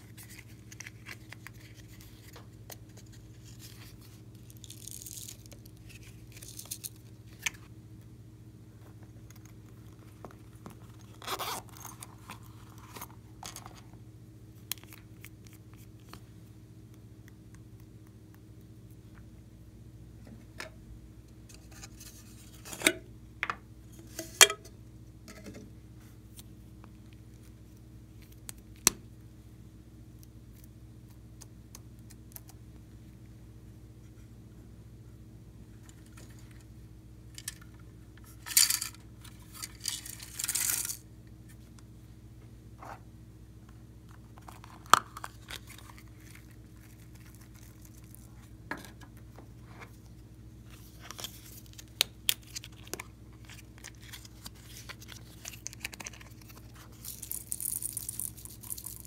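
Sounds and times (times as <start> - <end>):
faint low hum: 0.0 - 59.0
sequins rattling as poured: 57.0 - 59.0.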